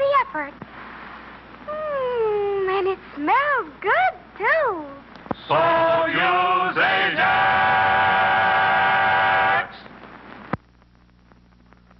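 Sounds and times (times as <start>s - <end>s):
vocal group singing a jingle: 5.4s - 9.8s.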